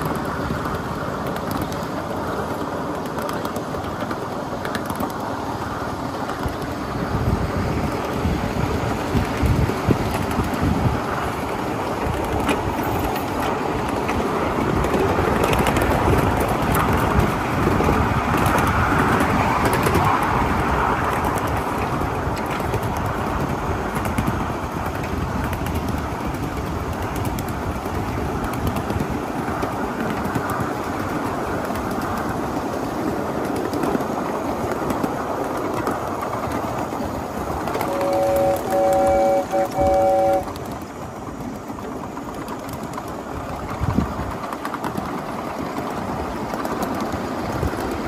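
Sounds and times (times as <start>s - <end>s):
small steam train wheels clattering: 0.0s - 48.0s.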